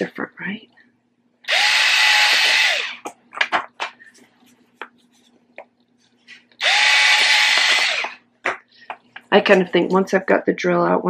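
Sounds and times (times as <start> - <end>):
cordless drill whining: 1.5 - 3.1, 6.6 - 8.2
drill bit grinding through shell: 1.5 - 3.2, 6.6 - 8.2.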